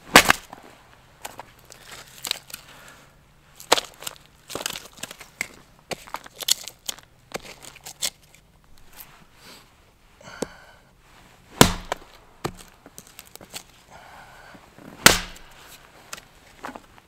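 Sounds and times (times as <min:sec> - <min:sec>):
axe chopping wood: 0:00.1 - 0:00.5, 0:11.6 - 0:12.7, 0:15.0 - 0:15.6.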